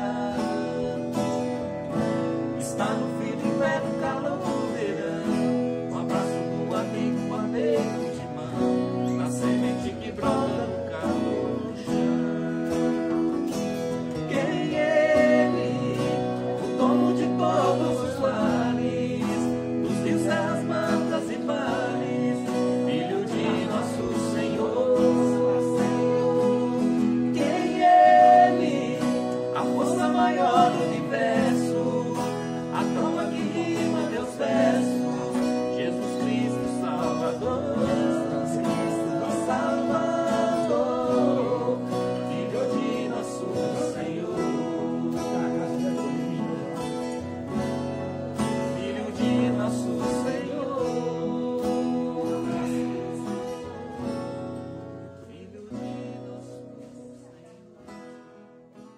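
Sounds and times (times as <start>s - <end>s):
man singing: 0.0s - 57.9s
guitars strumming: 0.0s - 58.9s.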